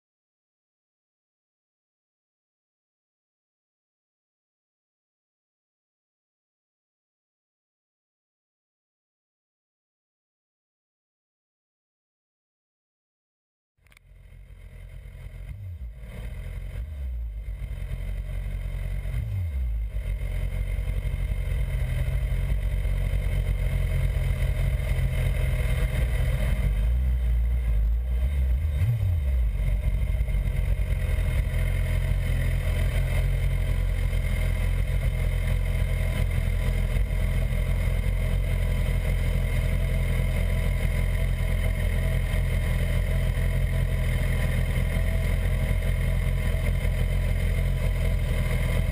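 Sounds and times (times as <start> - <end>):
motorcycle engine running at low revs: 13.8 - 48.9.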